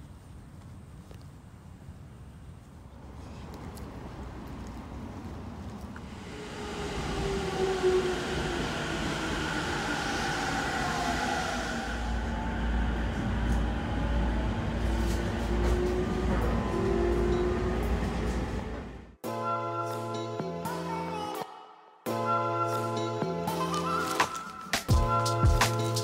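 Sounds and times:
low rumble inside train: 0:01.4 - 0:19.2
electric train whine: 0:06.0 - 0:19.2.

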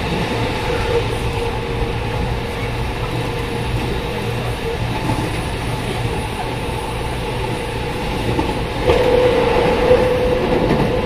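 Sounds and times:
train rumbling: 0:00.0 - 0:11.0.

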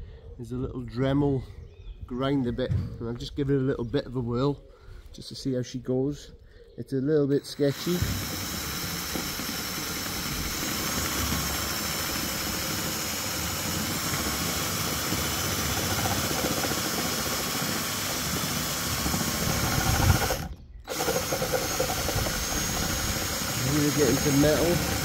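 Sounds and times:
drill grinding bit whining: 0:07.3 - 0:25.0.

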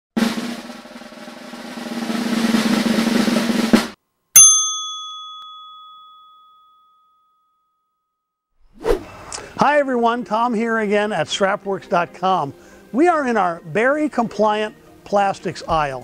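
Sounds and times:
snare drum roll: 0:00.2 - 0:04.0
bright chime ding: 0:04.4 - 0:07.7.

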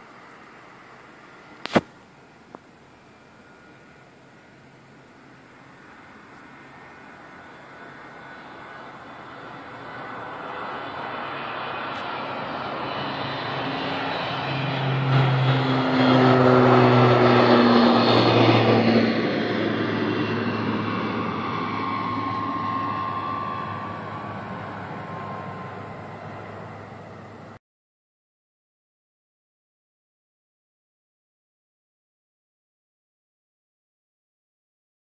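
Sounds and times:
turboprop airliner taking off: 0:00.0 - 0:27.6.

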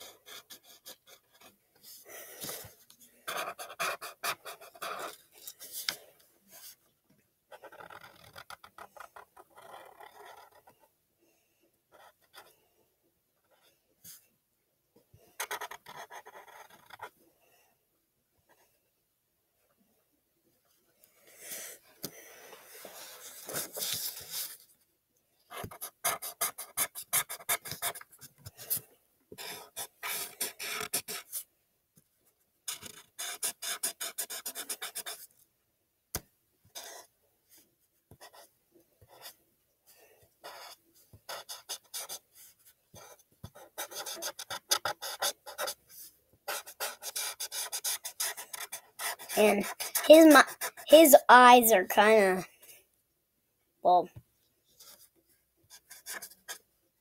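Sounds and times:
marker scratching on paper: 0:00.0 - 0:06.8, 0:07.5 - 0:10.9, 0:11.9 - 0:12.5, 0:15.3 - 0:17.1, 0:22.7 - 0:24.6, 0:25.5 - 0:28.8, 0:29.4 - 0:31.4, 0:32.7 - 0:35.3, 0:36.7 - 0:37.1, 0:38.1 - 0:39.4, 0:40.4 - 0:52.4, 0:54.8 - 0:55.1, 0:55.7 - 0:56.6.

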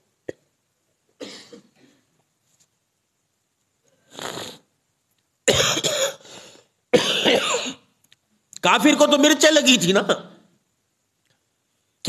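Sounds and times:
man coughing: 0:01.2 - 0:02.0, 0:05.5 - 0:06.3, 0:07.0 - 0:07.9
man sipping from a cup: 0:04.0 - 0:04.6.

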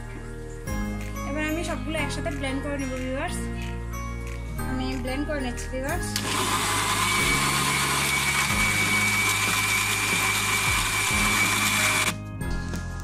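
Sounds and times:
blender running: 0:06.1 - 0:12.2.

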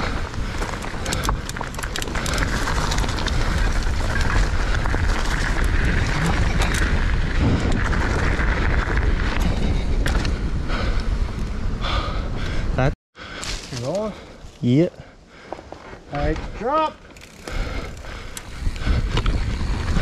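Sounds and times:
tyres crunching over gravel: 0:00.0 - 0:09.3
wind on microphone: 0:00.0 - 0:12.4, 0:17.9 - 0:20.0
bike rolling on pavement: 0:00.0 - 0:12.8, 0:15.3 - 0:20.0.

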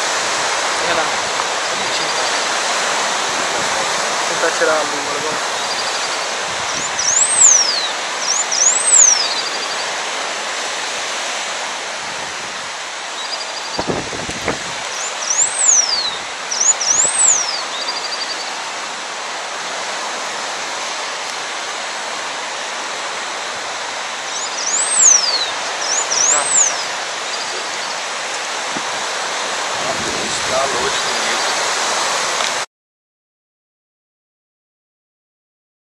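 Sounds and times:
steady rushing hiss: 0:00.0 - 0:32.6
finch singing: 0:01.6 - 0:02.6, 0:04.4 - 0:10.0, 0:13.1 - 0:14.0, 0:14.8 - 0:18.6, 0:24.2 - 0:28.1.

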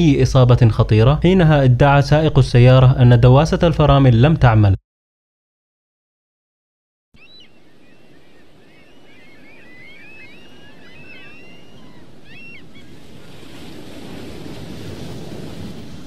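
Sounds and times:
birds chirping: 0:07.2 - 0:13.4
ocean surf on beach: 0:07.3 - 0:16.0.

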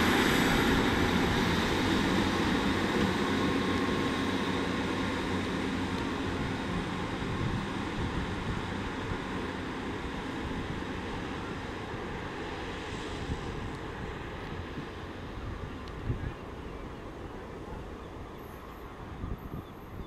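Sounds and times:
diesel train pulling away: 0:00.0 - 0:20.0.

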